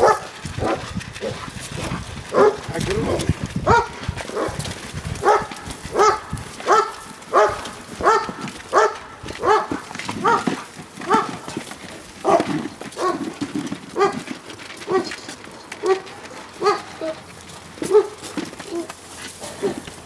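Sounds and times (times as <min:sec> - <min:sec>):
dog barking: 0:00.0 - 0:01.4, 0:02.3 - 0:02.6, 0:03.6 - 0:04.6, 0:05.2 - 0:11.5, 0:12.2 - 0:13.2, 0:14.0 - 0:14.2, 0:14.9 - 0:15.1, 0:15.8 - 0:17.2, 0:17.8 - 0:18.9.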